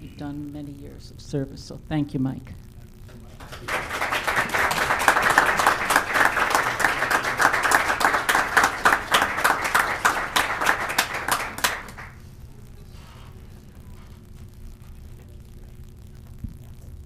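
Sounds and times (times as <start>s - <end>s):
crowd applauding: 3.4s - 12.2s.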